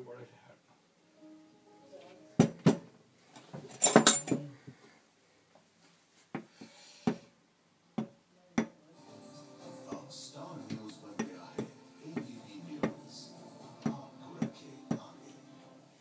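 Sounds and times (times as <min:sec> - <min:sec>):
parts clattering: 0:03.4 - 0:04.5.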